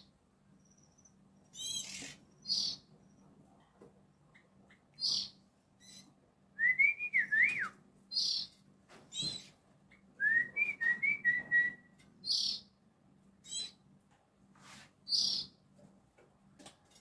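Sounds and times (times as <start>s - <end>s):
bird singing whistled notes: 0.6s - 3.2s, 5.0s - 8.5s, 10.2s - 12.7s.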